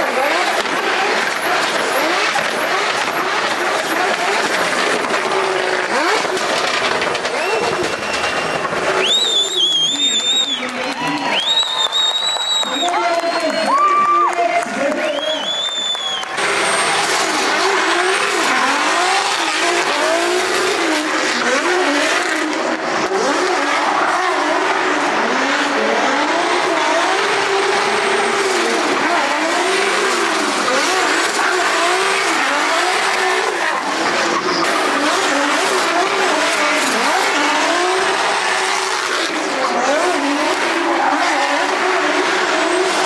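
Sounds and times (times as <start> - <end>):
car engines revving: 0.0 - 43.0
tyres squealing: 5.3 - 13.8.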